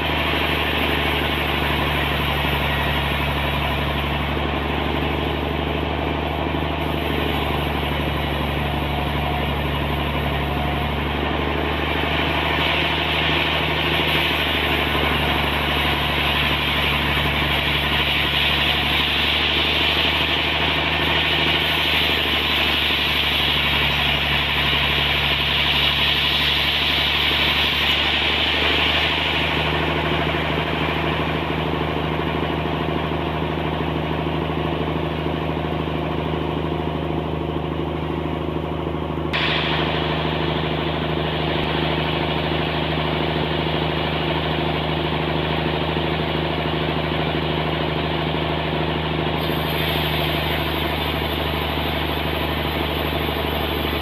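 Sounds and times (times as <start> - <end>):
sawmill machine hum: 0.0 - 54.0
saw blade hissing through wood: 49.4 - 54.0.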